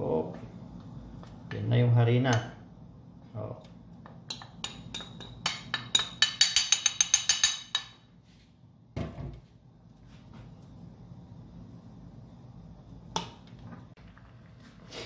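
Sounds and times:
bowl clinking against steel pot: 0:04.3 - 0:08.0.

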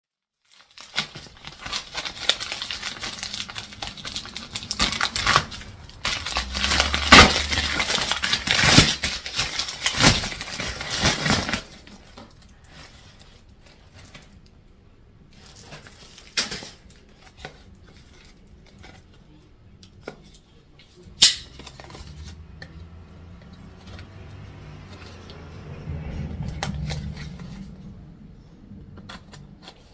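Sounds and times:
envelope crinkling and rustling: 0:00.4 - 0:22.6.

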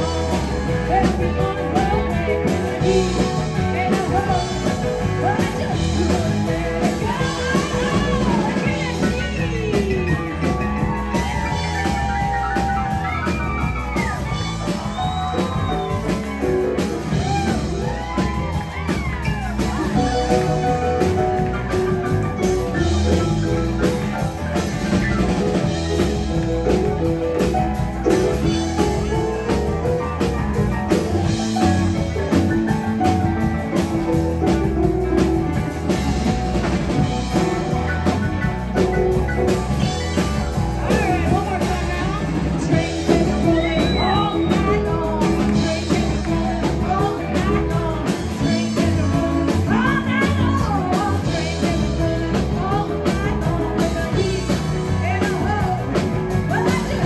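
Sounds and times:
woman singing: 0:00.0 - 0:21.7, 0:39.8 - 0:57.0
drum kit beat: 0:00.0 - 0:57.0
electric guitar: 0:00.0 - 0:57.0
keyboards: 0:00.0 - 0:57.0.

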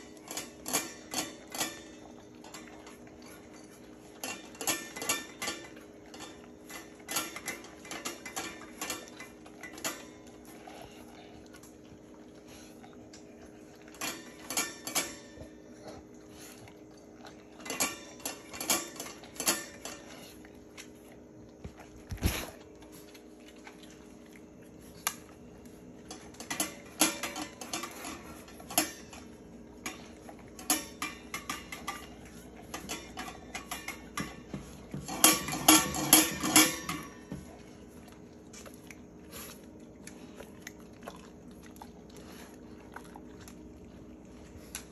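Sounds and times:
metal dog bowl clinking and rattling: 0:00.0 - 0:10.6, 0:13.1 - 0:15.7, 0:16.7 - 0:20.2, 0:26.0 - 0:38.1.

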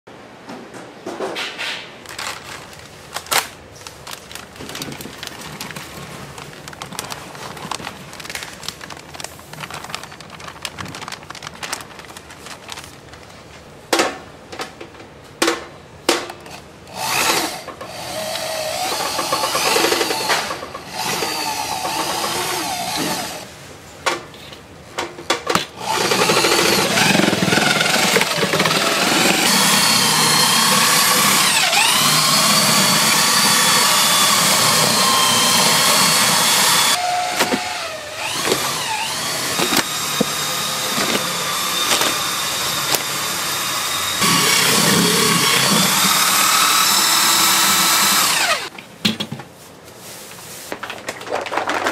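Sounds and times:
electric paddle mixer running: 0:16.9 - 0:23.4, 0:25.8 - 0:48.7.

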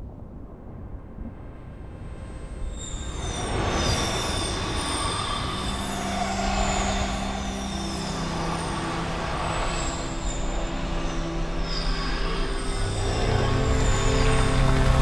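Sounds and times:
low rumbling drone: 0:05.3 - 0:15.0.

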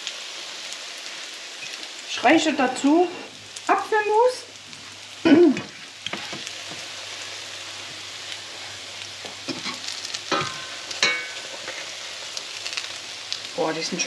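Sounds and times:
fat sizzling in a frying pan: 0:00.0 - 0:14.0
tableware clinking: 0:09.5 - 0:11.4.

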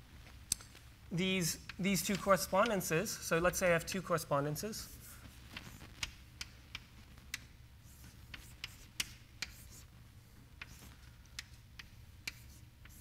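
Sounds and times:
low steady hum: 0:00.0 - 0:13.0
chalk tapping on blackboard: 0:05.6 - 0:09.9, 0:10.6 - 0:13.0.

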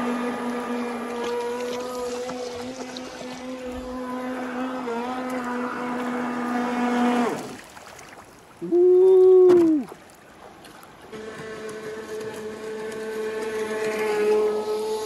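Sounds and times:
electric motor whine: 0:00.0 - 0:07.5, 0:11.1 - 0:15.0.

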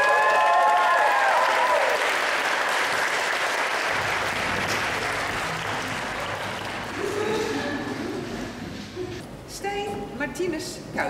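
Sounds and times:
audience applauding: 0:00.0 - 0:08.4.

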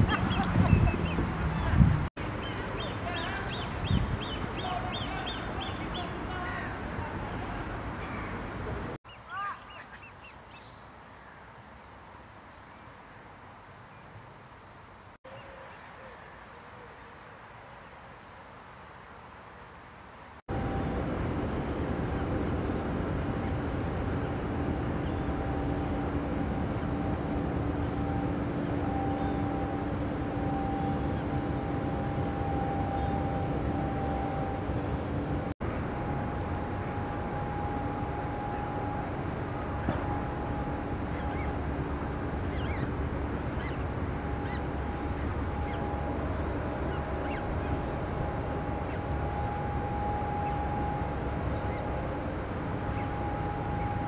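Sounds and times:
low mechanical drone: 0:00.0 - 0:09.0, 0:20.5 - 0:54.0
constant hum: 0:00.0 - 0:12.5, 0:20.4 - 0:54.0.

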